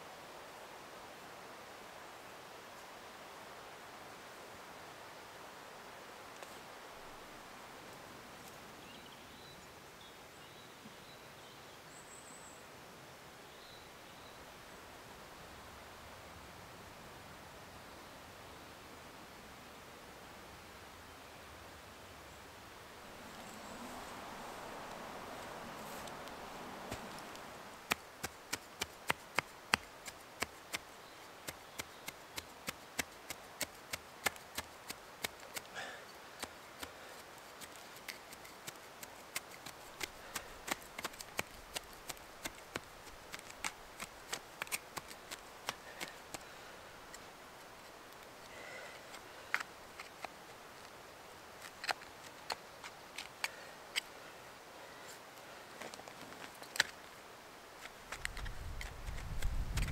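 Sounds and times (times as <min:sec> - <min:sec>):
grass stems snapping: 0:37.6 - 0:46.4.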